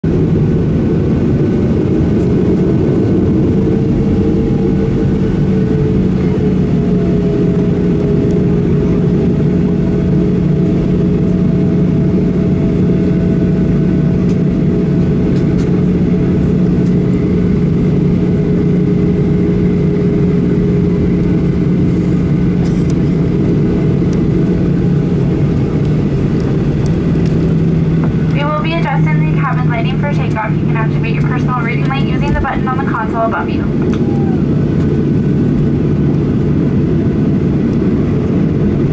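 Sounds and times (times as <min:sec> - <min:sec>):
jet engines droning in cabin: 0:00.0 - 0:38.9.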